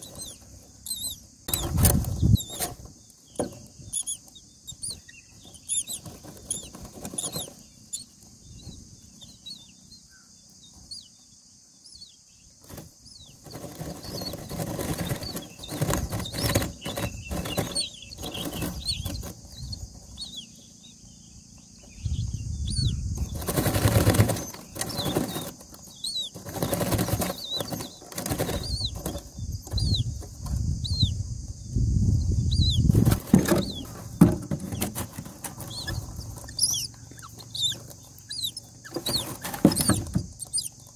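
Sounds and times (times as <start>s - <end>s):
nestlings begging cheeps: 0.0s - 40.9s
bird wings flapping in nest: 12.6s - 20.2s, 23.1s - 30.7s, 32.8s - 40.5s.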